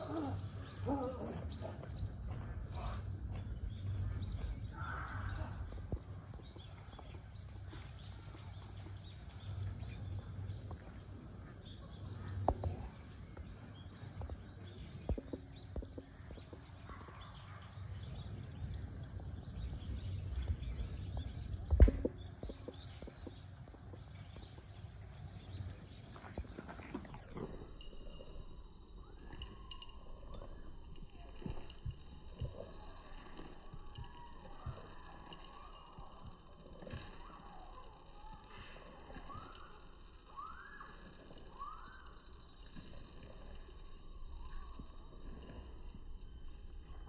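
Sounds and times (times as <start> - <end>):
steady low rumble: 0.0 - 31.3
faint bird chirps: 0.0 - 47.0.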